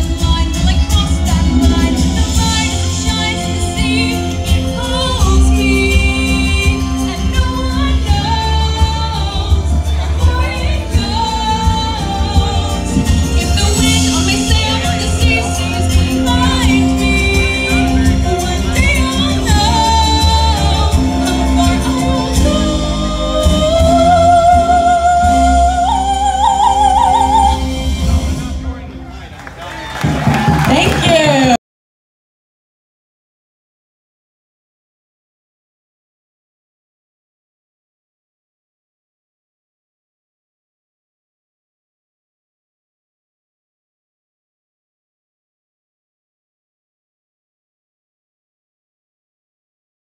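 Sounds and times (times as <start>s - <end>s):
woman singing into a microphone: 0.0s - 27.7s
amplified backing music: 0.0s - 31.6s.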